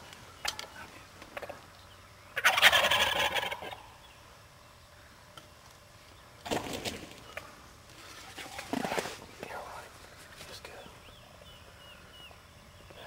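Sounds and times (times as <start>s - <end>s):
turkey gobbling: 2.4s - 4.0s.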